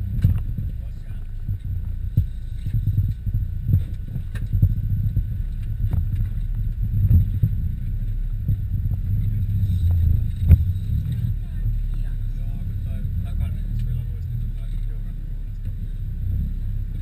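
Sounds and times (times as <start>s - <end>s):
body knocks and rattles: 0.0s - 12.0s
van engine rumble: 0.0s - 17.0s.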